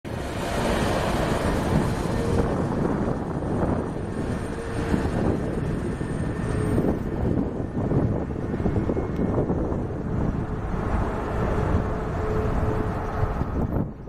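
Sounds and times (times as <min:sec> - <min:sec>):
jet engines rumbling: 0:00.0 - 0:14.0.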